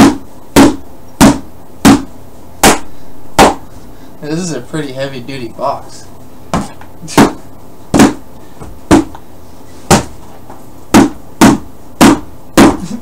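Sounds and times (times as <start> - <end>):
rubber object thwacking cardboard box: 0.0 - 3.6, 6.5 - 8.2, 8.9 - 9.2, 9.9 - 10.2, 10.9 - 12.8.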